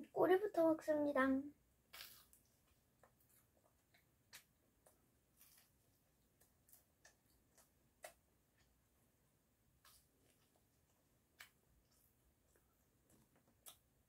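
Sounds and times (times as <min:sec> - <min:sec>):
faint chewing mouth clicks: 0:06.3 - 0:08.8, 0:11.3 - 0:13.9.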